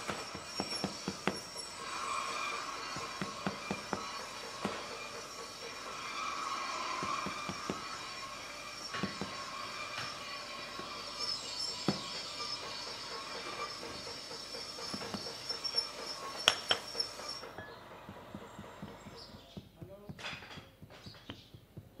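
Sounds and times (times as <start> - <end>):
faint wavering squeal: 0.0 - 19.6
sharp taps and knocks: 3.0 - 4.9, 18.0 - 22.0.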